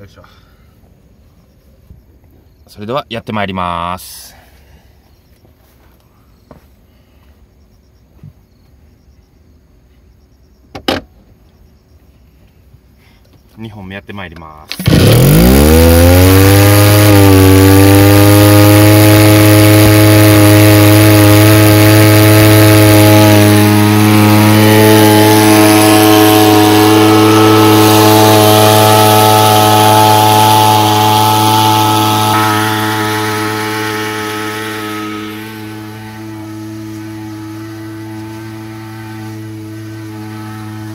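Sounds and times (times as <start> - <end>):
two-stroke engine at high throttle: 14.7 - 40.9.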